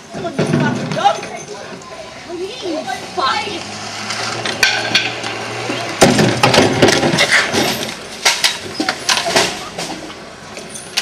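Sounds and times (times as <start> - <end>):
sharp knocks and clatters: 4.4 - 5.4, 6.0 - 10.1.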